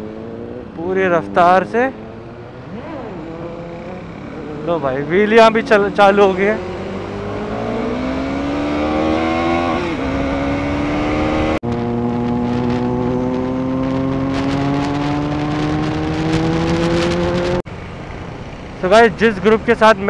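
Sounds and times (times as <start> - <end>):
motorcycle engine at full throttle: 0.0 - 20.0.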